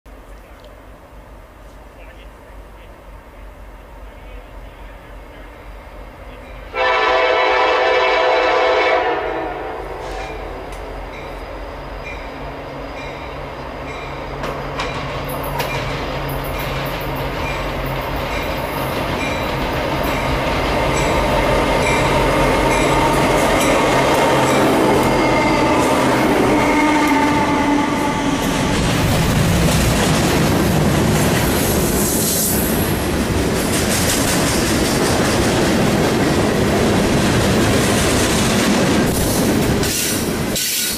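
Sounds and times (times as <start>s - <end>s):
train horn blast: 6.7s - 10.7s, 21.8s - 28.5s.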